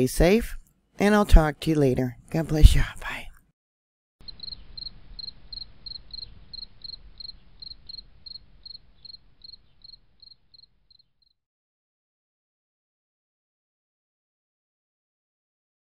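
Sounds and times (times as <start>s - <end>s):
cricket chirping: 4.2s - 11.3s.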